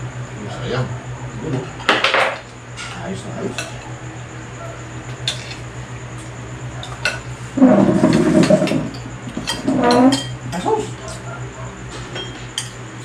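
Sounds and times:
spoons clinking on ceramic bowls: 0:09.4 - 0:11.2, 0:12.2 - 0:12.8.

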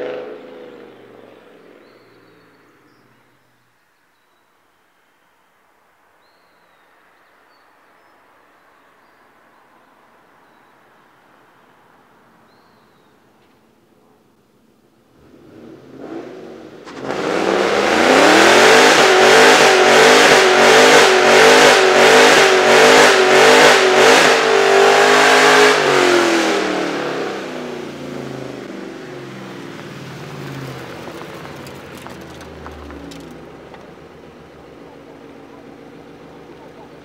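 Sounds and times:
car engine revving hard: 0:00.0 - 0:01.2, 0:15.2 - 0:29.4.

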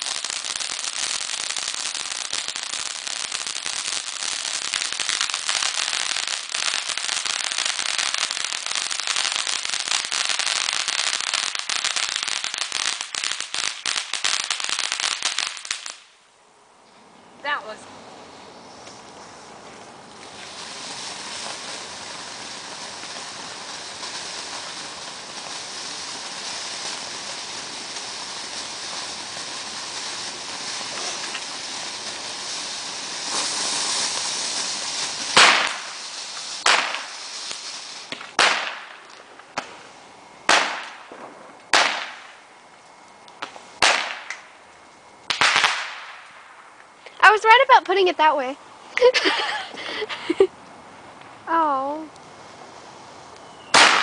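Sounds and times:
firework fountain hissing: 0:00.0 - 0:16.3, 0:17.4 - 0:54.0
sharp bangs: 0:53.7 - 0:54.0.

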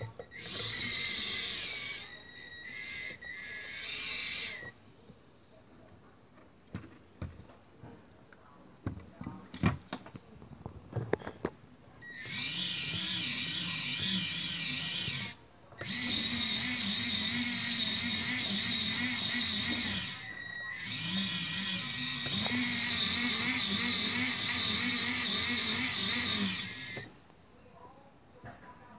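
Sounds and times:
small electric motor whine: 0:00.0 - 0:04.7, 0:12.0 - 0:27.1.

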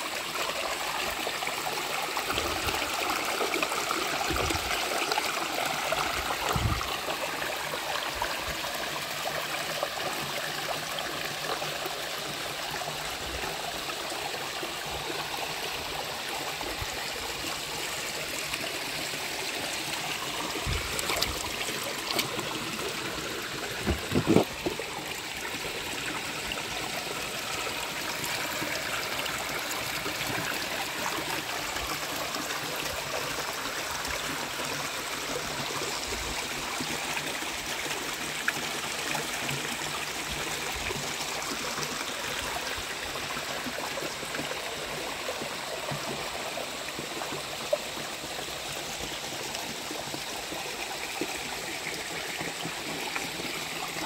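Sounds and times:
creek water over rocks: 0:00.0 - 0:54.0
thumps or splashes: 0:23.7 - 0:24.8.

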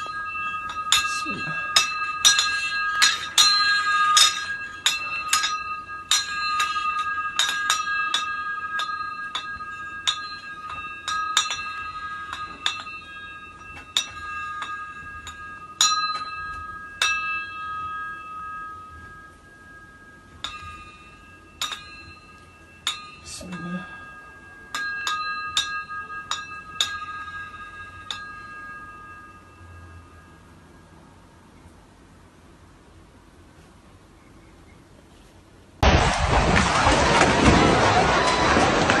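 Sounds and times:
glass light shades clinking: 0:00.0 - 0:30.2.

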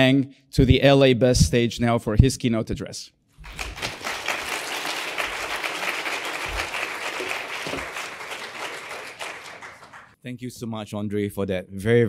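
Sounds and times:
audience applauding: 0:03.4 - 0:10.2.

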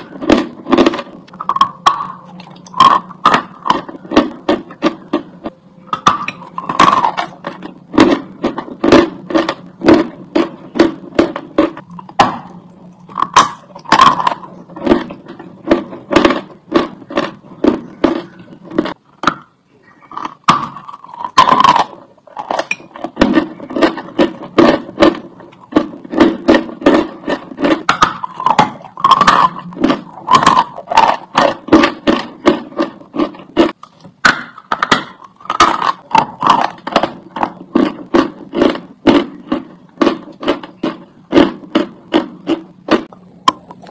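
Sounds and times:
crunching chalk chewing: 0:19.8 - 0:34.0, 0:34.6 - 0:43.9.

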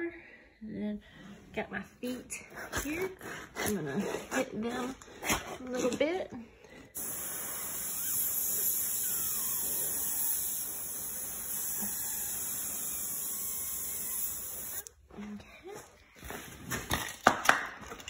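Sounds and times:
paint spray gun hissing: 0:07.0 - 0:14.9.

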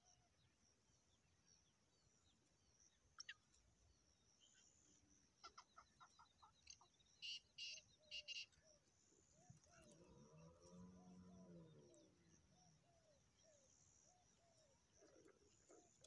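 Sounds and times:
small birds chirping: 0:01.1 - 0:16.0
francolin calling: 0:05.4 - 0:10.0.

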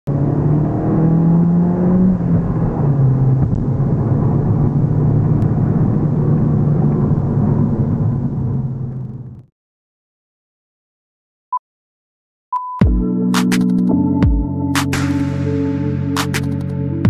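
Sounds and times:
car engine revving: 0:00.1 - 0:09.4
road noise: 0:00.1 - 0:09.5.

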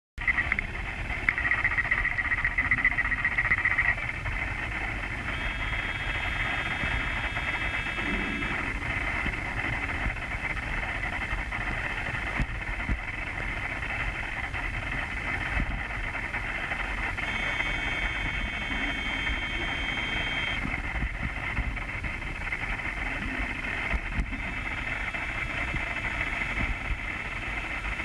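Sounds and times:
low rumble: 0:00.2 - 0:19.8
underwater motor buzzing whine: 0:00.2 - 0:28.0
steady high tones: 0:01.4 - 0:11.2, 0:16.8 - 0:20.7.

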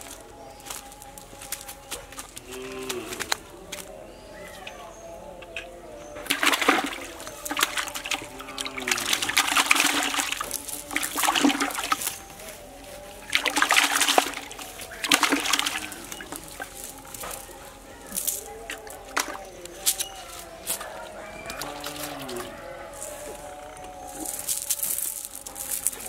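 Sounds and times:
fish splashing in bucket: 0:05.5 - 0:22.6.

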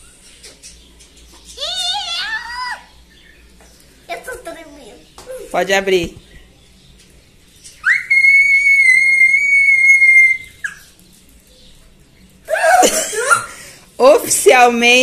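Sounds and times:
person squealing with excitement: 0:12.5 - 0:13.5.

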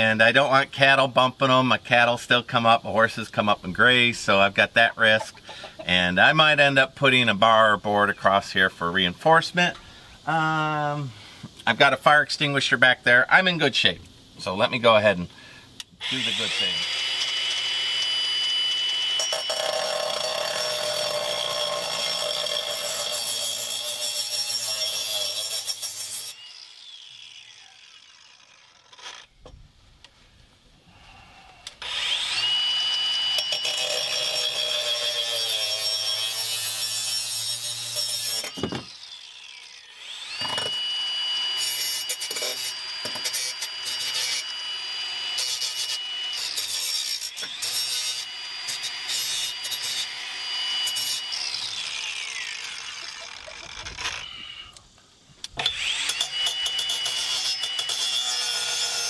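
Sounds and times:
angle grinder cutting steel: 0:16.0 - 0:29.4, 0:31.7 - 0:54.8, 0:55.5 - 0:59.0.

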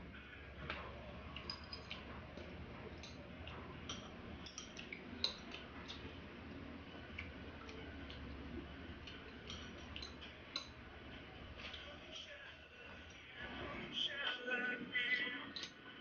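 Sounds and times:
low steady hum: 0:00.0 - 0:16.0
chopsticks clicking on plates: 0:00.6 - 0:06.2, 0:06.9 - 0:12.3.

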